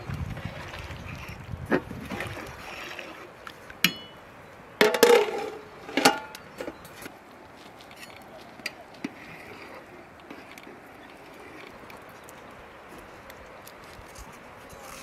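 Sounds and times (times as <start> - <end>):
metal skimmer clinking against pot: 3.8 - 4.2.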